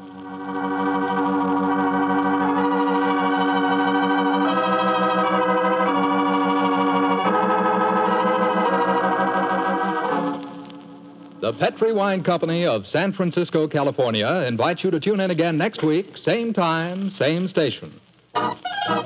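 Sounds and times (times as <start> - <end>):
organ chords with tremolo: 0.0 - 12.2.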